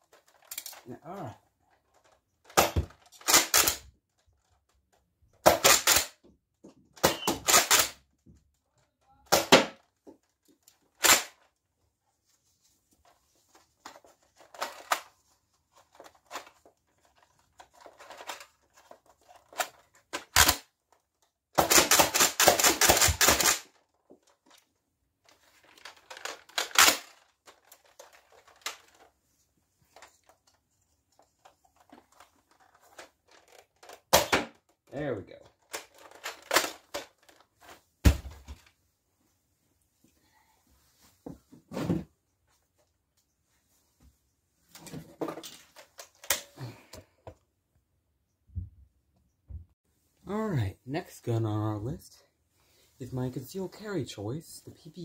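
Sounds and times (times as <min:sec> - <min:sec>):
toy blaster pops and clacks: 0:02.5 - 0:03.9, 0:05.4 - 0:06.2, 0:07.0 - 0:08.0, 0:21.6 - 0:23.7, 0:26.1 - 0:27.2.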